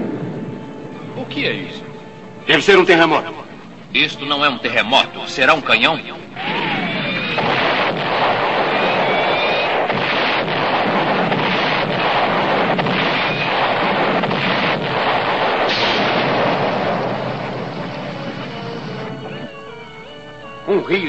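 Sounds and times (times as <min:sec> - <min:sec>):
cartoon explosions rumbling: 0:06.4 - 0:19.4.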